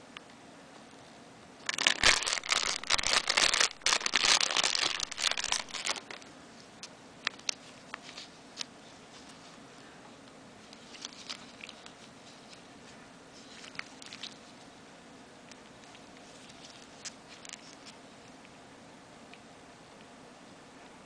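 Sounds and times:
plastic bag crinkling: 1.6s - 6.3s, 10.8s - 12.6s, 13.4s - 14.6s, 15.8s - 18.0s.

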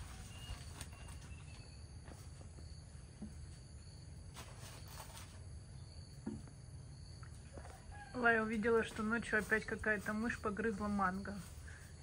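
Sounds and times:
thin bird chirps: 0.2s - 1.9s.

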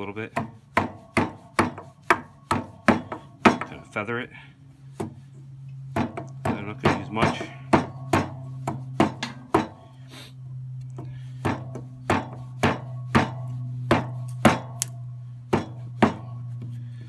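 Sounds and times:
axe chopping wood: 0.3s - 3.8s, 5.9s - 9.8s, 11.4s - 16.3s
low hum: 0.6s - 17.0s.

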